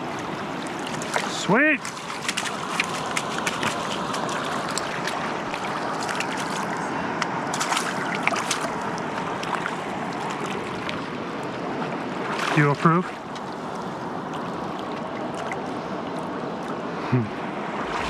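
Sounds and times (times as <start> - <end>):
river rushing over stones: 0.0 - 12.8, 17.6 - 18.0
small splashes and trickles: 0.0 - 16.8.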